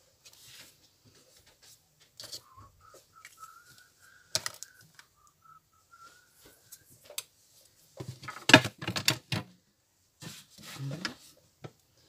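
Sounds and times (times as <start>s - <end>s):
faint wavering whistle: 2.4s - 6.9s
knocks and rattles of objects: 8.0s - 9.5s.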